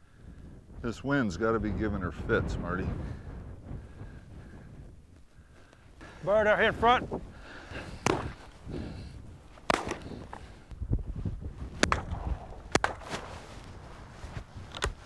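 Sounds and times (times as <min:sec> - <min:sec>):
faint wind: 0:00.0 - 0:15.0
shotgun shots: 0:09.7 - 0:10.2, 0:11.8 - 0:13.3.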